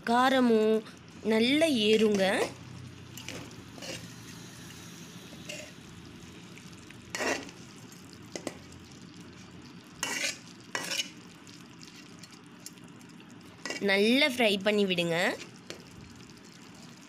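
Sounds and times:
low sizzle of frying: 0.0s - 17.0s
spatula scraping a pan: 1.9s - 4.5s, 5.4s - 5.8s, 7.1s - 7.6s, 10.0s - 11.2s.

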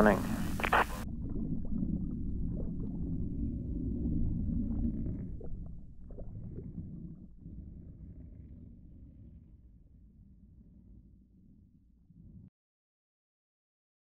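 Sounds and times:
faint blips: 0.0s - 1.0s
underwater rumble: 0.0s - 12.5s.

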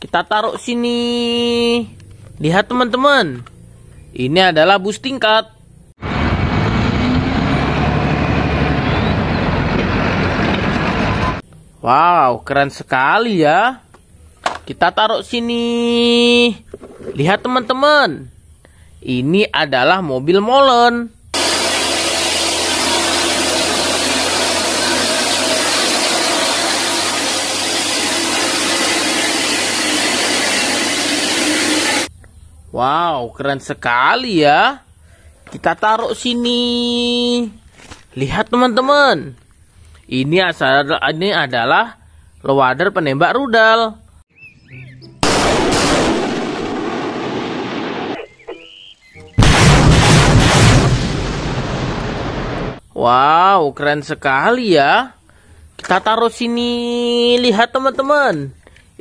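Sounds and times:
concrete mixer truck running: 6.0s - 11.4s, 21.4s - 32.1s
low hum: 21.2s - 32.1s
rocket launcher firing: 21.4s - 32.1s, 45.2s - 48.2s, 49.4s - 52.8s.

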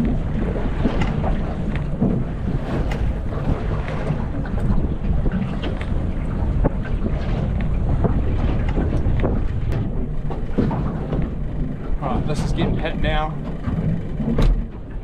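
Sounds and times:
outboard motor running: 0.0s - 15.0s
water splashing against hull: 0.0s - 15.0s
wind buffeting microphone: 0.0s - 15.0s.

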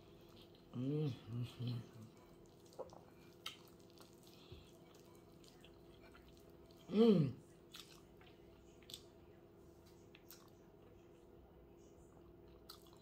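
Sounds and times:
person humming mmm: 0.7s - 2.1s, 6.9s - 7.4s.

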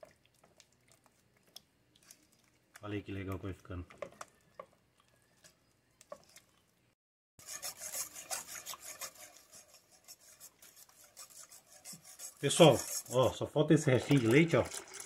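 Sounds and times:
spatula scraping thick paste: 7.4s - 14.6s
whisk scraping a saucepan: 7.4s - 15.0s.

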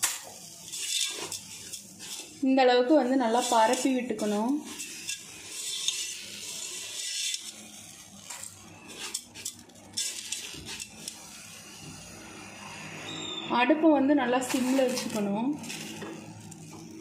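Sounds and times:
salt scraping metal pot: 0.0s - 11.4s, 14.3s - 17.0s
rock salt rustling and crunching: 3.2s - 11.2s, 14.5s - 17.0s.

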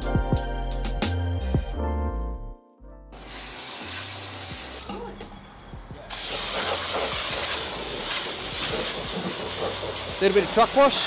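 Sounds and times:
pressure washer spraying vehicle: 3.2s - 4.8s, 6.0s - 11.0s.

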